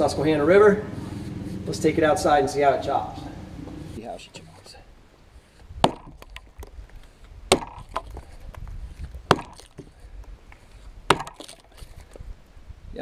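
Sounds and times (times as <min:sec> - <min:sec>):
axe chopping log: 0:05.8 - 0:06.8, 0:07.5 - 0:08.4, 0:09.0 - 0:10.0, 0:11.0 - 0:11.9.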